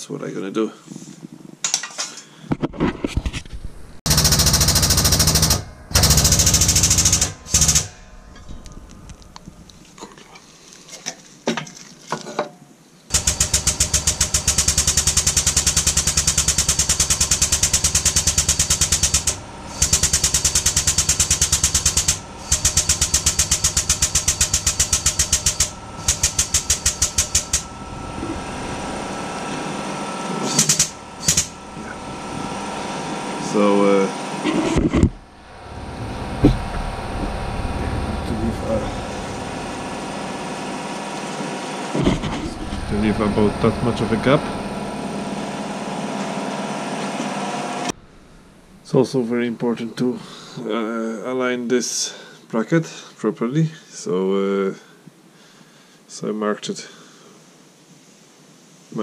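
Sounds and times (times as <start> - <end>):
press pump pulsing: 4.1 - 9.6, 13.1 - 48.9.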